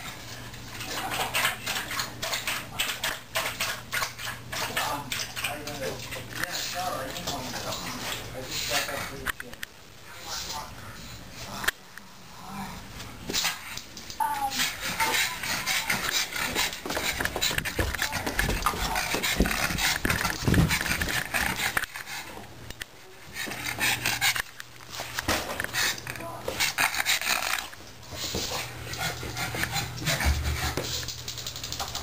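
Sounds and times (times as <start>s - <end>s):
dog breathing heavily: 14.5s - 31.3s.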